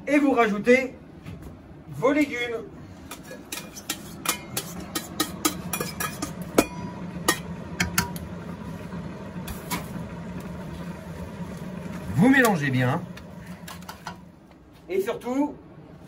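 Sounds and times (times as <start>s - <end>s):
low hum: 3.6s - 14.7s
metal container knocking on pot: 4.2s - 8.2s.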